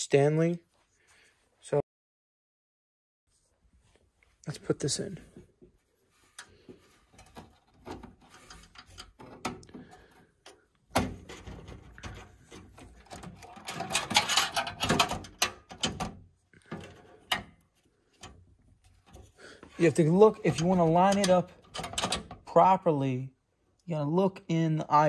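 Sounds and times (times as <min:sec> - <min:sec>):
screwdriver clicking and scraping metal: 0:07.2 - 0:09.8, 0:11.2 - 0:16.1, 0:20.2 - 0:22.4.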